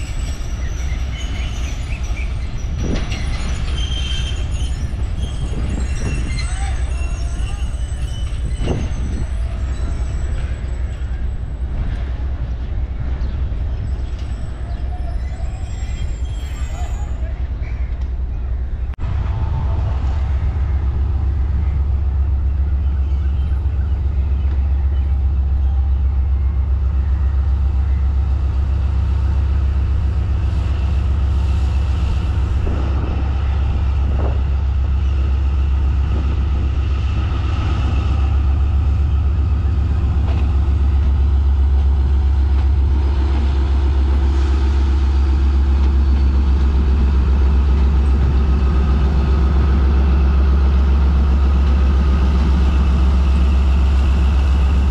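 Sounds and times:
diesel locomotive engine rumbling: 0.0s - 54.9s.

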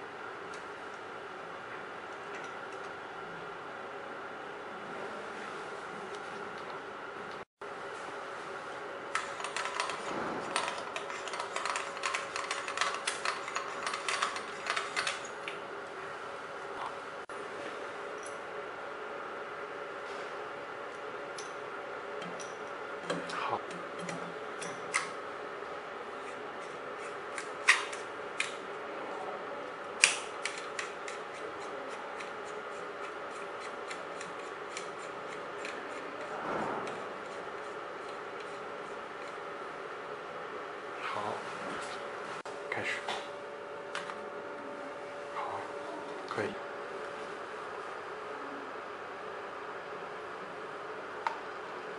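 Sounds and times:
steady hum: 0.0s - 51.9s.

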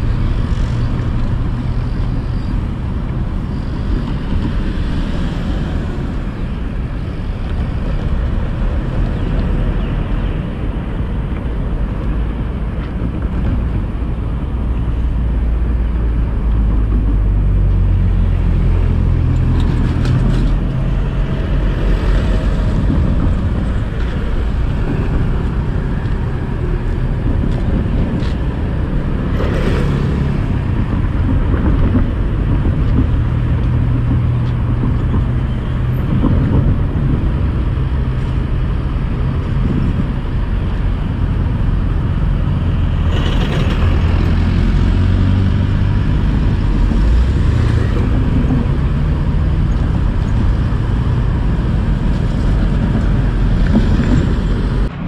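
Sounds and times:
road traffic rumble: 0.0s - 55.0s
construction machinery: 16.6s - 55.0s.

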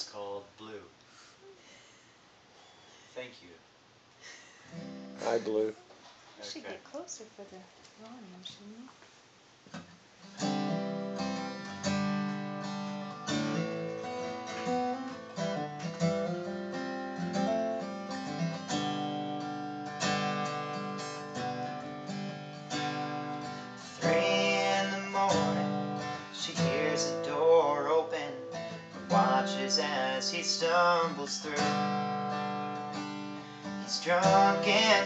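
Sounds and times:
acoustic guitar strumming: 4.7s - 5.6s, 9.8s - 35.0s
man singing: 23.5s - 32.4s, 33.7s - 35.0s.

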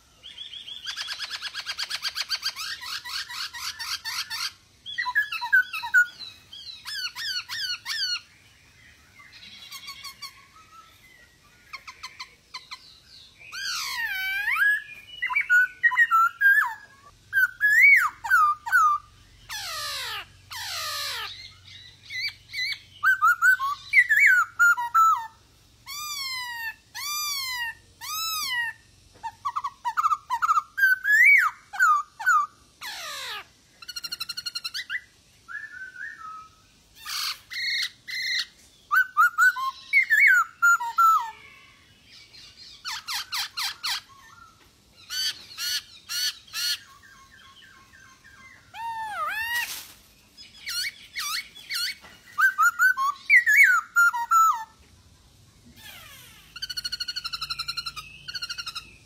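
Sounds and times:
bird singing whistled phrases: 0.2s - 8.3s, 9.2s - 41.5s, 50.4s - 54.8s.

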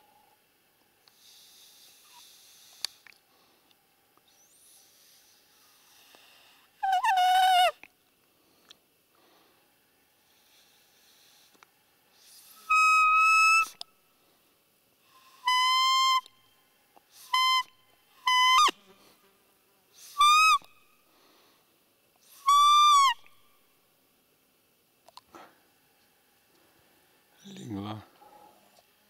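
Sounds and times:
deer whistled peeps: 12.2s - 13.8s, 15.2s - 16.3s, 17.2s - 17.7s, 18.3s - 18.8s, 20.0s - 20.8s, 22.2s - 23.3s.

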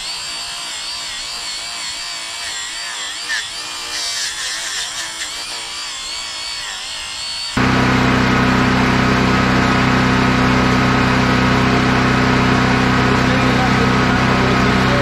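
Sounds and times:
engine idling: 7.6s - 15.0s.

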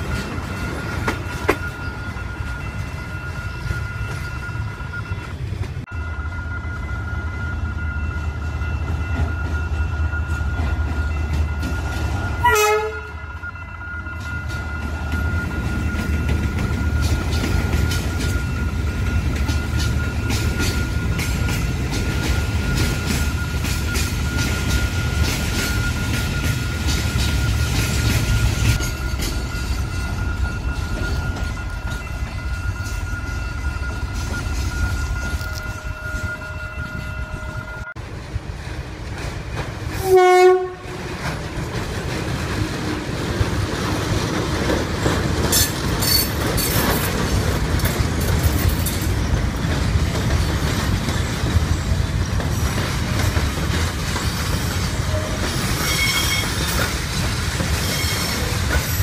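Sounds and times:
high wheel squeals: 0.0s - 38.0s, 50.4s - 59.0s
train wheels rumbling on track: 0.0s - 59.0s
train horn blast: 12.4s - 13.3s, 40.0s - 41.2s.

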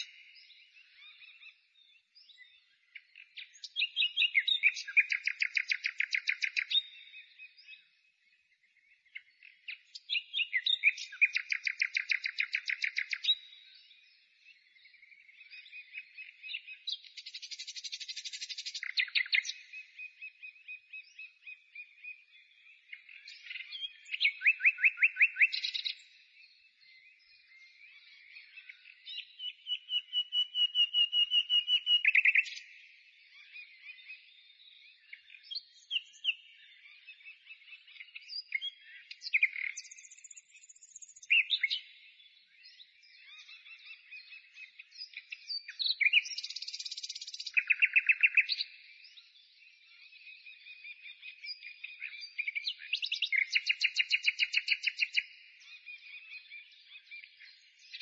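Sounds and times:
songbird singing trills: 0.0s - 58.0s.

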